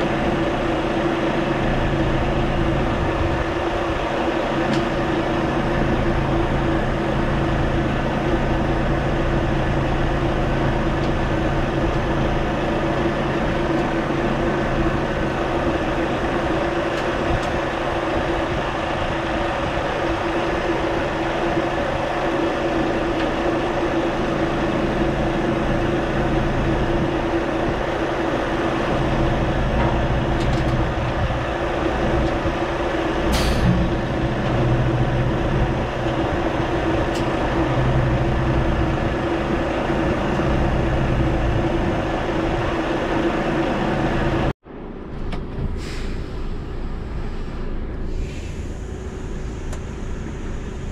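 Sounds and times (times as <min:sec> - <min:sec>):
diesel engine idling: 0:00.0 - 0:50.9
brief hiss: 0:45.7 - 0:50.8.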